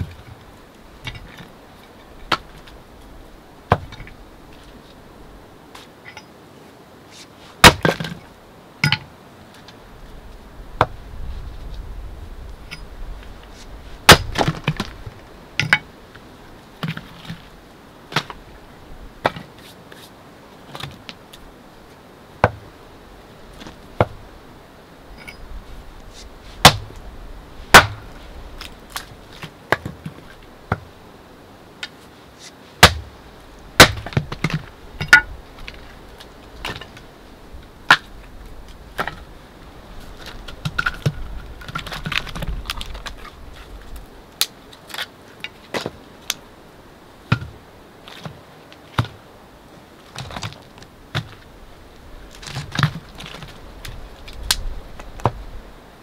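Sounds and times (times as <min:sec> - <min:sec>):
hatchet chopping firewood: 0:02.3 - 0:02.6, 0:03.7 - 0:04.1, 0:07.6 - 0:08.2, 0:13.6 - 0:15.0, 0:18.1 - 0:18.4, 0:22.4 - 0:22.7, 0:26.2 - 0:27.0, 0:27.7 - 0:28.2, 0:32.8 - 0:33.2, 0:33.8 - 0:35.3, 0:37.9 - 0:38.1, 0:39.0 - 0:39.2, 0:47.3 - 0:47.6, 0:49.0 - 0:49.2
rustling: 0:07.1 - 0:18.6, 0:19.2 - 0:31.1, 0:31.7 - 0:46.5, 0:47.2 - 0:55.7.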